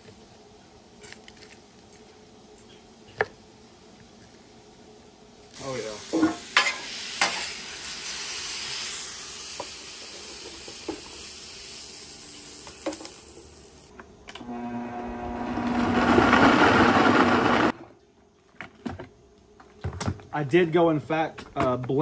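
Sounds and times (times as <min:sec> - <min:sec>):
food sizzling on a griddle: 0:05.5 - 0:13.9.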